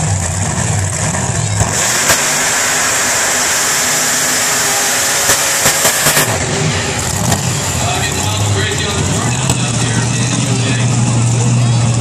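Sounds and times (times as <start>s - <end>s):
drag car engine at full power: 0.0s - 12.0s
sharp cracks: 4.2s - 6.4s.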